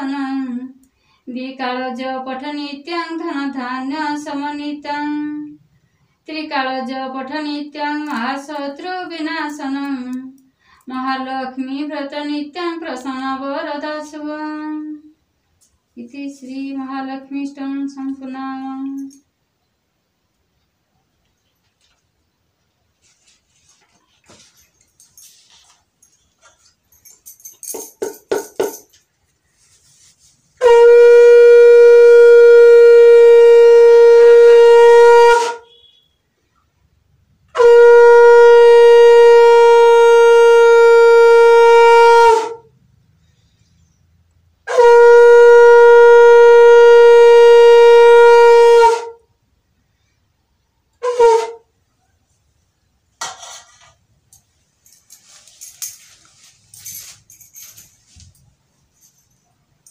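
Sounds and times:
conch shell blasts: 0:30.6 - 0:36.2, 0:37.5 - 0:42.7, 0:44.7 - 0:49.2, 0:51.0 - 0:51.7.

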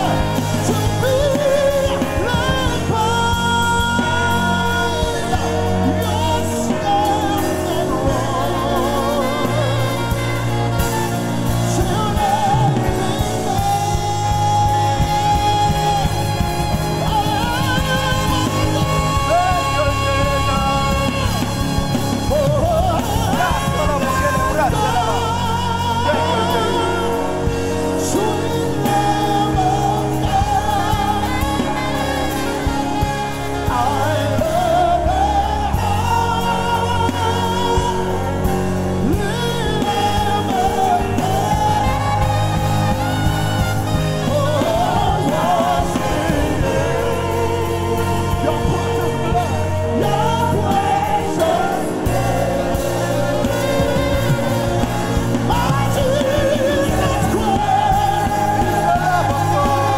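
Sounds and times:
gospel singer and choir: 0:00.0 - 0:59.9
keyboard and band playing: 0:00.0 - 0:59.9.

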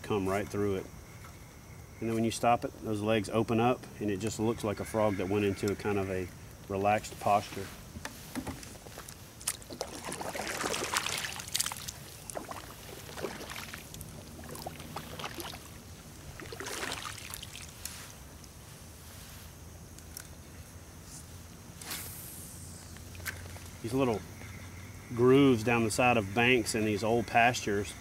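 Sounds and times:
kayak paddle splashing: 0:08.4 - 0:18.1.

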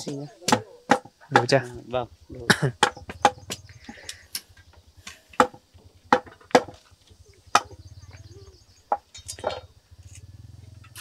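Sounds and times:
sharp blows on wood: 0:02.5 - 0:06.8.

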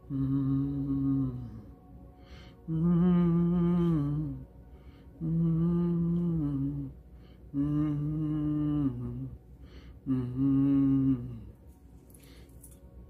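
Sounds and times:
low humming voice: 0:00.0 - 0:12.8.

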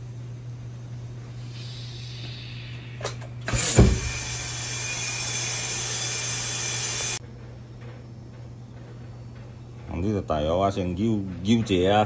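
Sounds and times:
compressed air hissing: 0:01.3 - 0:07.2.

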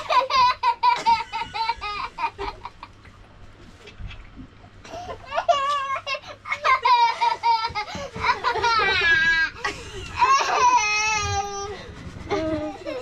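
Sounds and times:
young child giggling: 0:00.0 - 0:02.9, 0:04.9 - 0:11.0.

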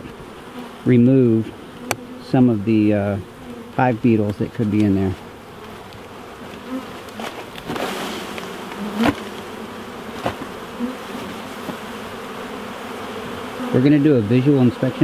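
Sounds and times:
bees buzzing: 0:00.0 - 0:15.0
sharp knocks: 0:09.0 - 0:09.3, 0:10.2 - 0:10.5.

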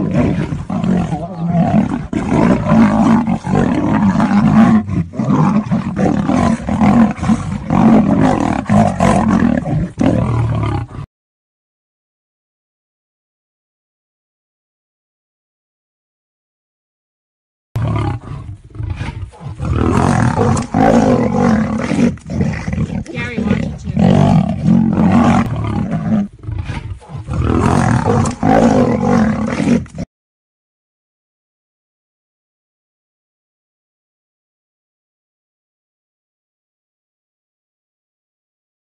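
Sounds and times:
lion and tiger roaring: 0:00.0 - 0:11.1, 0:17.8 - 0:30.1.

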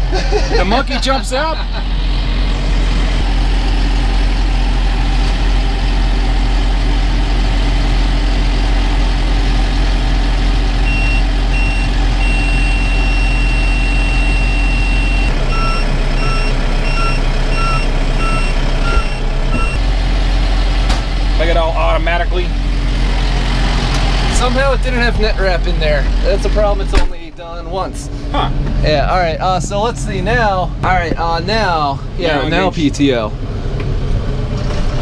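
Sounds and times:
tractor engine running: 0:00.0 - 0:35.0
electronic warning beeper: 0:10.9 - 0:19.8.

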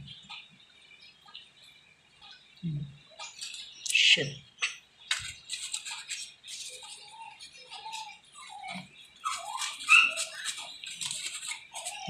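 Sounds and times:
high squeaky chirps: 0:04.6 - 0:12.0.

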